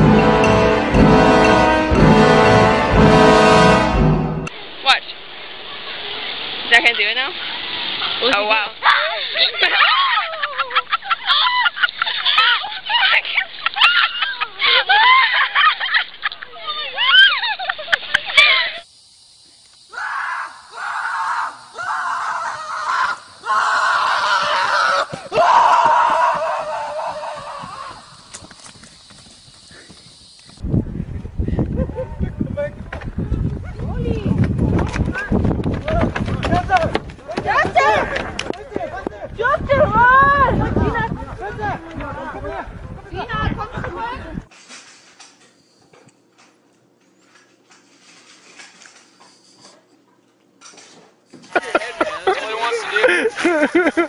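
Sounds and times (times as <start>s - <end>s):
person screaming: 19.9s - 28.1s
breaths: 29.5s - 30.3s.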